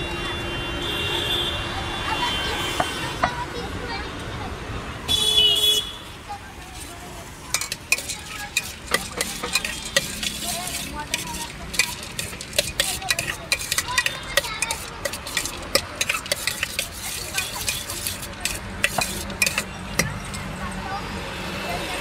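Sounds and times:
spoon clinking and scraping metal bowl: 0:06.8 - 0:20.5.

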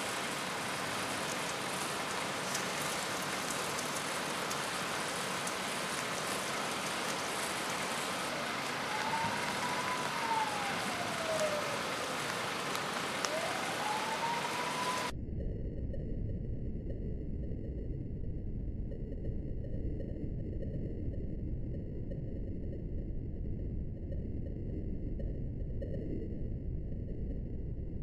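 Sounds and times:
emergency vehicle siren wailing: 0:00.0 - 0:15.1
rain hiss: 0:00.0 - 0:15.1.

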